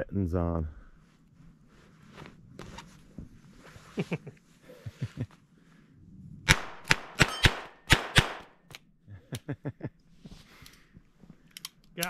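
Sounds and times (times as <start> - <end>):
revolver shots ringing: 6.9 - 8.4
faint gun clicks: 11.4 - 12.0.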